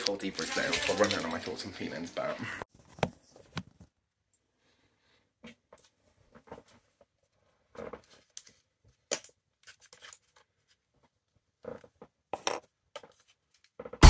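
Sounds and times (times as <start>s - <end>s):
rustles and clicks of handling: 5.4s - 14.0s.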